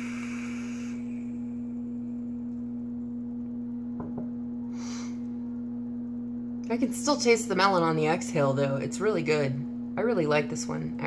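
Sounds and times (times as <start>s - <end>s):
vape draw hiss: 0.0s - 1.3s
breathy exhale: 0.0s - 1.5s, 4.7s - 5.3s
low electrical hum: 0.0s - 11.0s.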